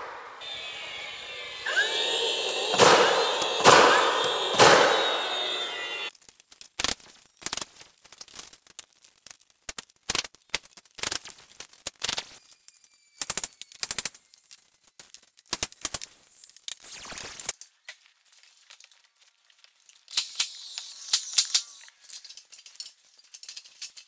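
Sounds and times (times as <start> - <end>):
nail gun shots: 1.7 - 6.1.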